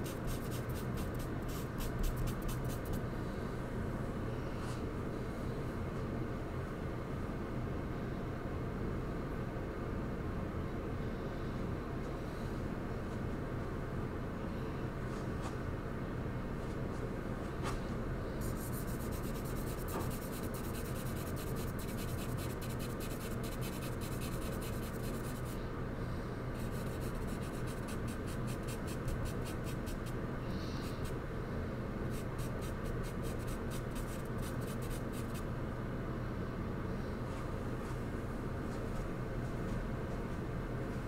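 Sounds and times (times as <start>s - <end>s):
charcoal scratching on paper: 0.0s - 3.0s, 18.4s - 25.6s, 26.6s - 30.1s, 32.1s - 35.4s
low background hum: 0.0s - 41.0s.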